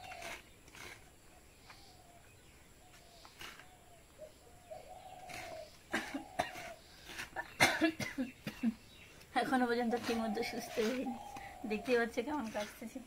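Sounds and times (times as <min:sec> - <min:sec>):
coconut scraping: 0:00.0 - 0:01.3, 0:03.2 - 0:03.9, 0:04.8 - 0:07.6, 0:09.2 - 0:13.0.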